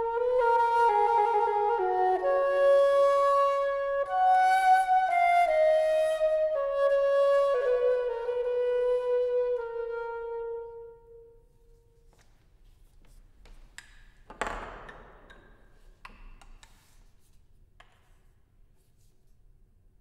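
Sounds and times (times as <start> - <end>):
flute note: 0.0 - 12.0.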